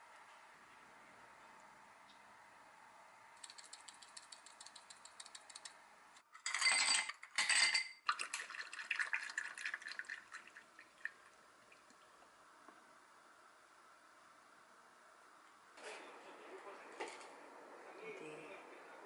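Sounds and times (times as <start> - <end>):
ice crackling and clinking: 6.4 - 8.2
ice cubes rattling into glass: 6.4 - 8.5
tea pouring over ice: 8.0 - 12.0.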